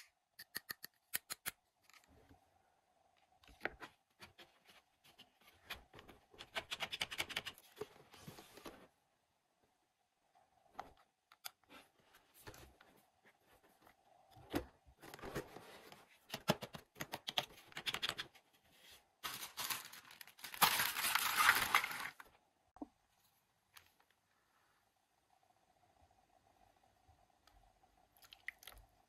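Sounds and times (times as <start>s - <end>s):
crackly plastic rustling: 19.2s - 22.4s.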